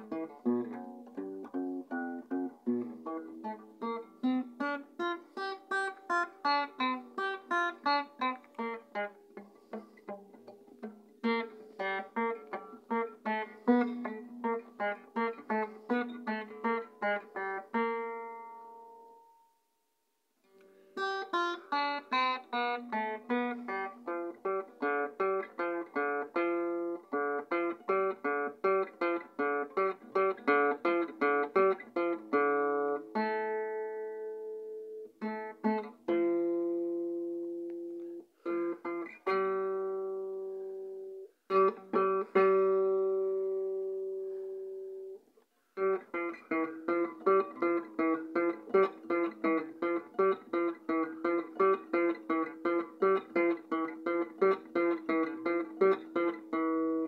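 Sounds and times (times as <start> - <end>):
acoustic guitar picking: 0.0 - 19.4, 21.0 - 45.2, 45.8 - 57.0.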